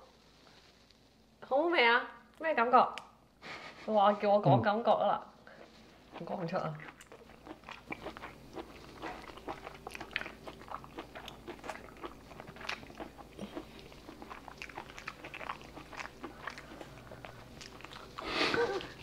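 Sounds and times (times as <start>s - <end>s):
chewing with small crunches: 5.4s - 19.0s.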